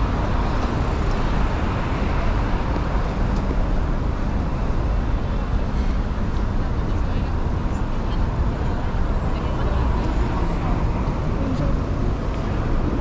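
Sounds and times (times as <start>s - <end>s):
street traffic hum: 0.0s - 13.0s.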